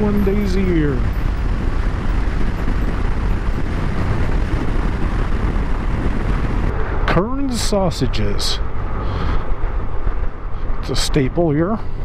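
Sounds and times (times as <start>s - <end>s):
motorcycle engine cruising: 0.0s - 6.7s
wind buffeting microphone: 0.0s - 12.0s.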